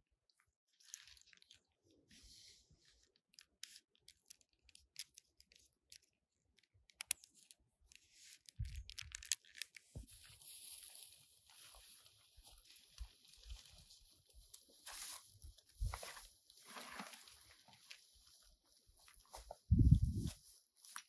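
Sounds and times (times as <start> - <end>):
cord rustling and scraping on bark: 0.7 - 21.0
small clicks: 3.1 - 9.9.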